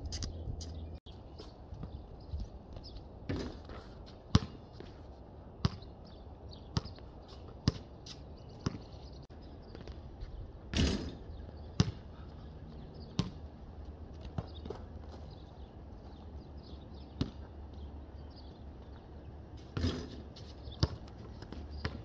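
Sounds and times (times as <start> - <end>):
basketball bouncing: 3.3 - 4.6, 5.6 - 5.9, 6.8 - 7.9, 8.6 - 8.9, 11.8 - 12.0, 13.1 - 13.4, 17.2 - 17.5, 19.6 - 22.0.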